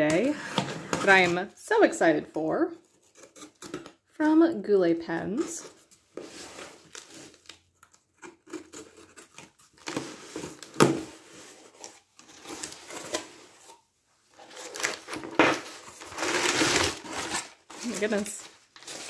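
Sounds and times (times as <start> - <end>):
packing paper rustling: 8.5 - 19.0.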